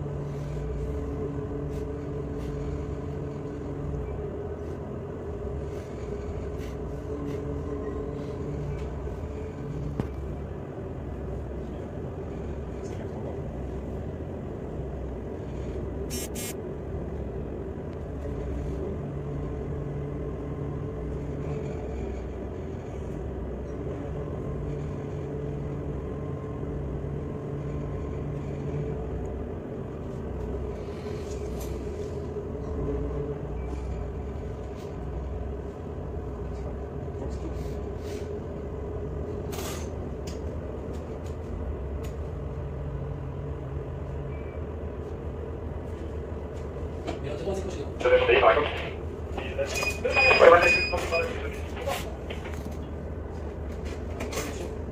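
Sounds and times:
diesel engines humming: 0.0 - 54.9.

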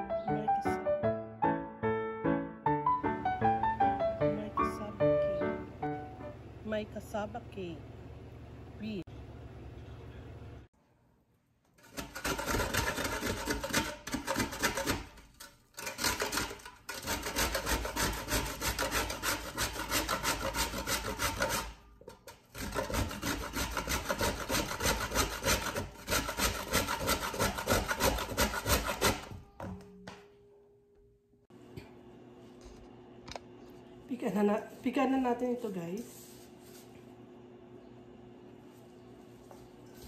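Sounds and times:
root grated on metal grater: 11.8 - 29.4.

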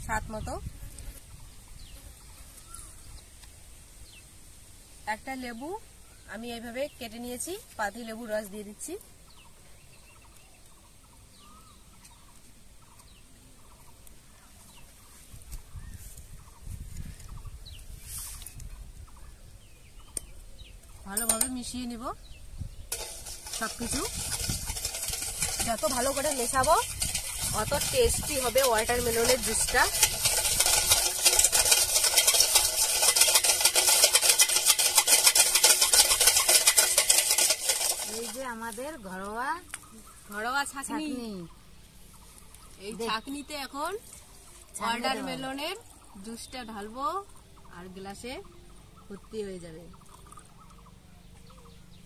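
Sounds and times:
small birds chirping: 0.0 - 33.2, 37.4 - 52.0
whisk clicking in steel bowl: 22.9 - 38.5.

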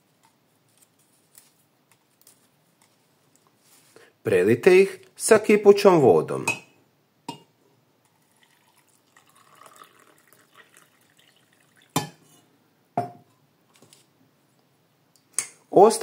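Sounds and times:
water trickling into mug: 8.1 - 12.3.

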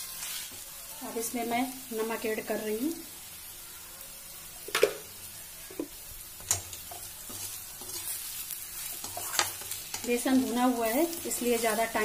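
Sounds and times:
okra sizzling in oil: 0.0 - 12.0
spatula scraping and clinking on pan: 6.4 - 12.0.

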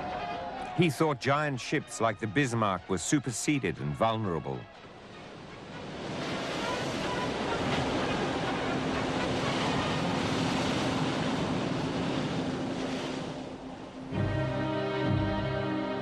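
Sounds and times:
water rushing and surging: 0.0 - 16.0
music: 14.1 - 16.0.

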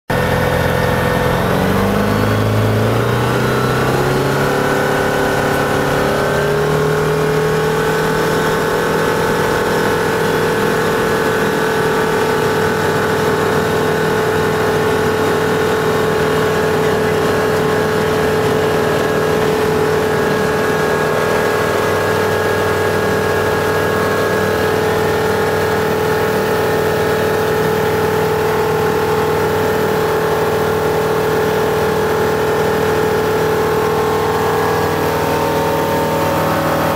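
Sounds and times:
light aircraft engine and propeller: 0.1 - 36.9.

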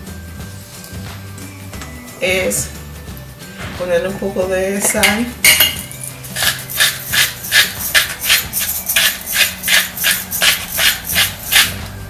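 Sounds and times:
salt grinder rasping: 5.8 - 11.9.

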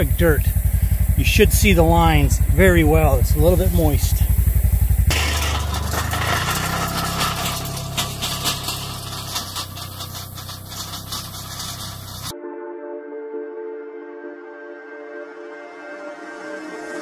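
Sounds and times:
utility vehicle engine running: 0.0 - 12.3
clanks and rattles: 5.0 - 12.3.

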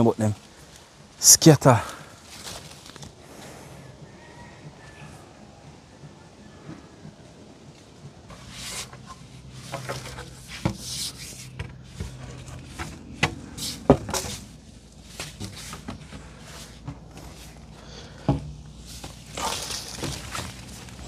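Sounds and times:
leaves rustling: 0.0 - 21.0
twigs snapping and knocking: 2.2 - 3.2, 16.9 - 21.0.

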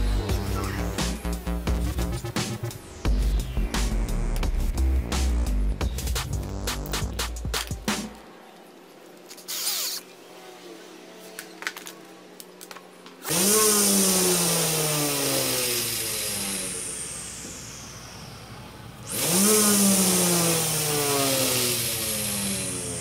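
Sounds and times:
person talking: 0.4 - 1.0
electric motor whine: 13.2 - 23.0.

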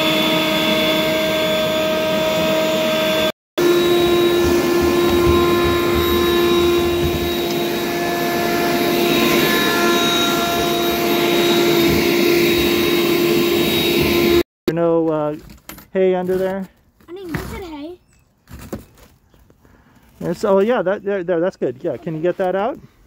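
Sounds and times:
leaf blower whining: 0.0 - 14.4.

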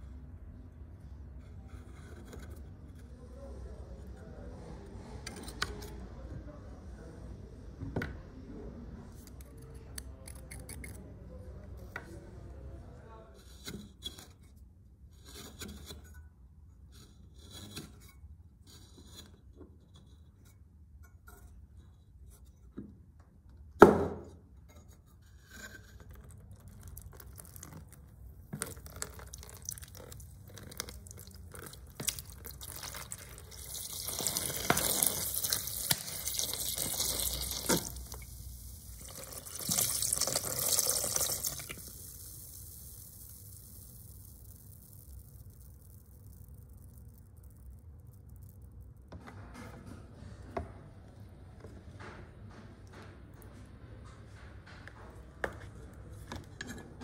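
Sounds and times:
water running: 28.6 - 45.0.

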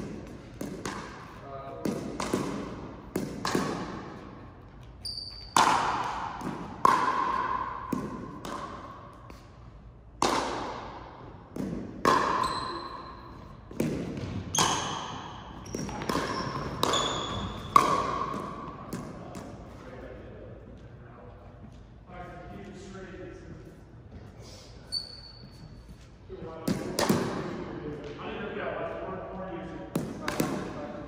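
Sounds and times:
ball bouncing on floor: 0.0 - 4.0, 4.7 - 9.5, 11.5 - 12.9, 13.7 - 19.6
paddles striking ball: 0.0 - 4.3, 5.5 - 9.5, 10.2 - 12.6, 13.7 - 19.6, 29.9 - 30.9
shoes squeaking: 4.5 - 5.7, 14.3 - 18.0, 24.2 - 26.2.

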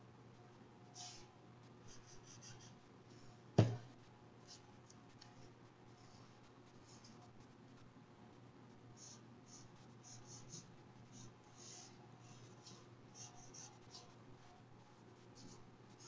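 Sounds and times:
pencil scratching on paper: 9.0 - 14.2.

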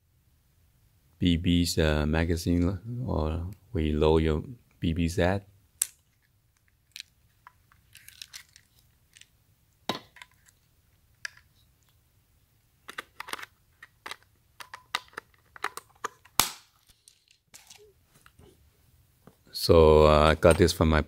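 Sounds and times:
hands handling plastic pistol: 5.8 - 12.0, 12.8 - 18.4.

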